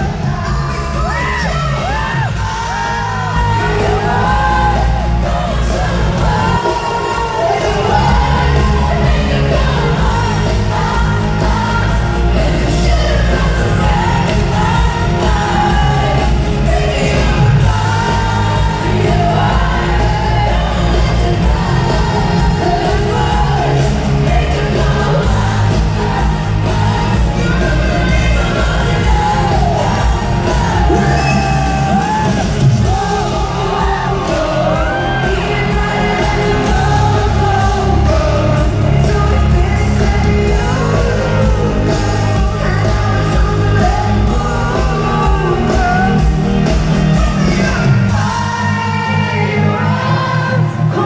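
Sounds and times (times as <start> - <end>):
woman singing: 0.0 - 46.6
amplified band music: 0.0 - 51.0.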